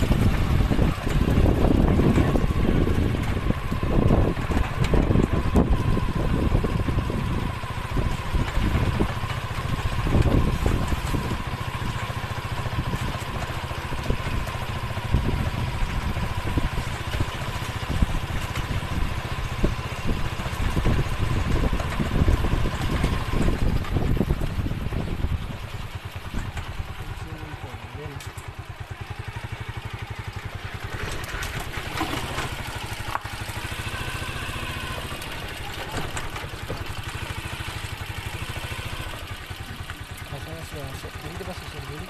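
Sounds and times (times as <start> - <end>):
wind buffeting: 0.0 - 12.0, 13.9 - 27.0
motorcycle engine rumble: 0.0 - 42.0.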